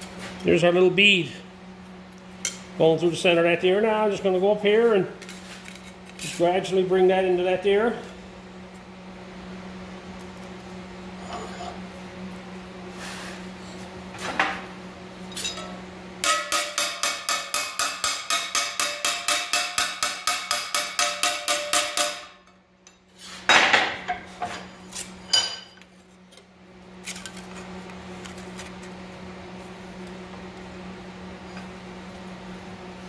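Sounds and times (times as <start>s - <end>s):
hammer ringing on sheet steel: 16.2s - 22.5s.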